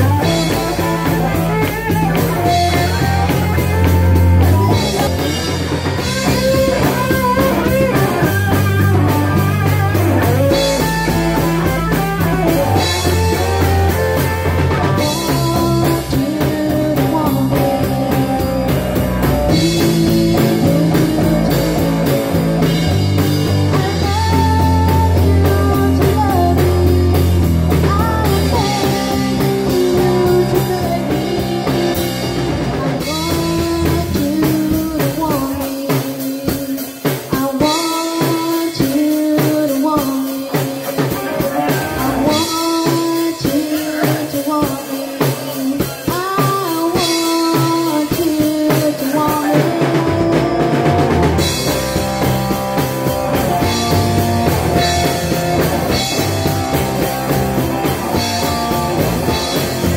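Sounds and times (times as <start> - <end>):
live rock band playing: 0.0 - 59.9
woman singing: 6.0 - 22.6, 23.6 - 32.2, 32.9 - 51.8.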